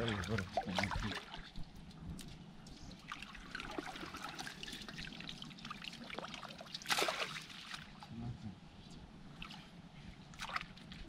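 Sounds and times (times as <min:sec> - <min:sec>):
water trickling and splashing: 0:00.0 - 0:08.2, 0:10.3 - 0:11.0
loud water splash: 0:06.8 - 0:07.5.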